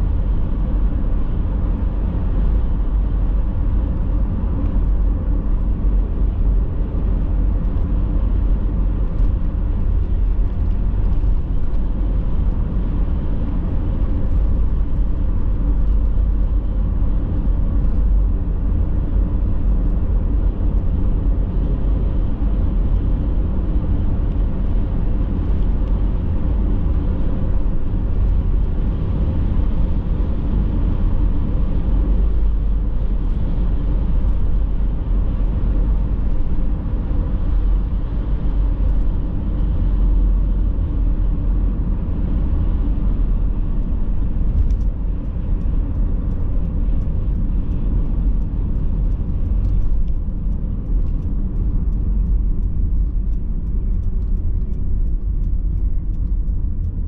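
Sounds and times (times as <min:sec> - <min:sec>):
car tyres and engine rumble: 0:00.0 - 0:57.0.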